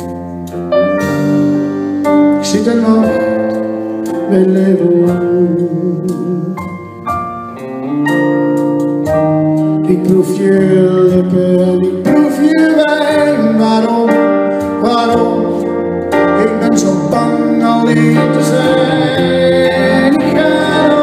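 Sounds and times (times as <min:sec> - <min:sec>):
live band playing slow song: 0:00.0 - 0:21.0
man singing into microphone: 0:02.3 - 0:06.8, 0:09.8 - 0:21.0.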